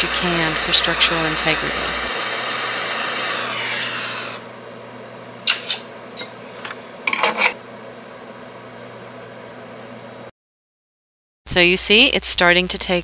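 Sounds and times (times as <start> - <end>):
soldering torch hissing: 0.0 - 4.5.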